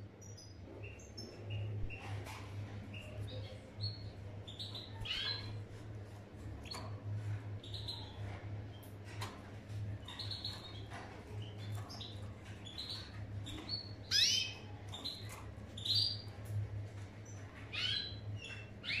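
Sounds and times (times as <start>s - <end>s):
canaries chirping: 0.1s - 19.0s.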